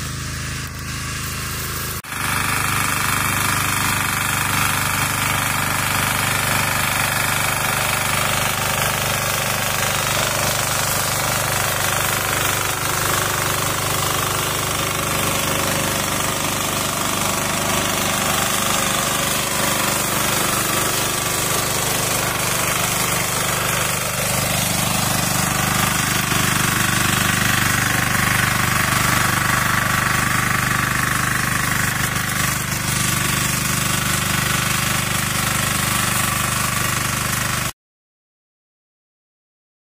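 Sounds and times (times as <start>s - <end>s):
power weeder engine running: 0.0s - 37.7s
rotary tines knocking in soil: 0.1s - 37.7s.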